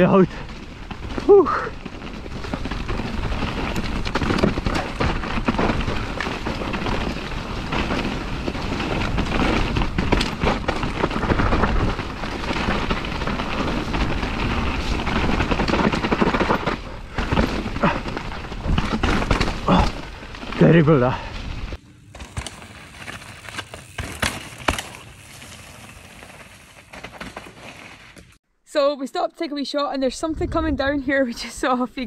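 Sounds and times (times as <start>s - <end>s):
bike rattling over roots: 0.0s - 28.4s
wind and tyre noise: 0.0s - 28.4s, 30.0s - 32.0s.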